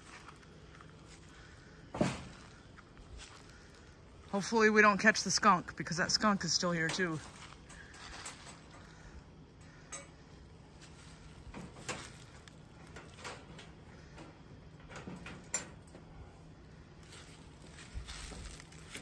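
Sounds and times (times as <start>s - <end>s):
wire trap metallic clicks and rattles: 7.6s - 8.9s, 9.9s - 10.2s, 11.5s - 16.0s.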